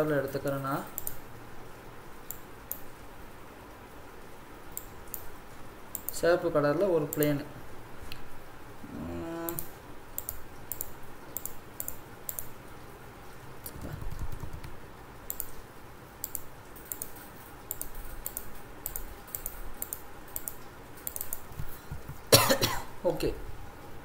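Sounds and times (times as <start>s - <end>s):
computer mouse clicking: 0.0s - 1.2s, 2.2s - 2.9s, 4.7s - 5.3s, 5.9s - 6.2s, 9.5s - 12.6s, 13.6s - 15.6s, 16.2s - 22.3s.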